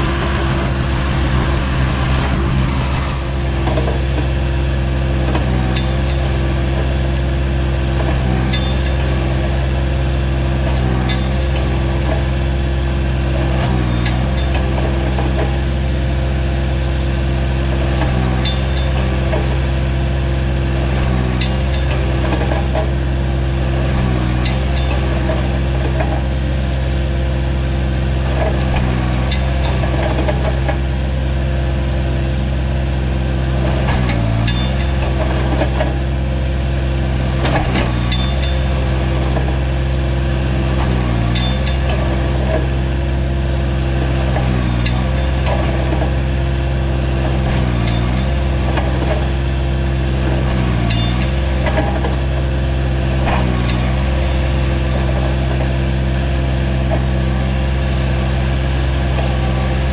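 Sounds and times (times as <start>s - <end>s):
loader engine running: 0.0s - 59.9s
sharp metallic clinks: 41.4s - 42.0s, 50.9s - 51.4s.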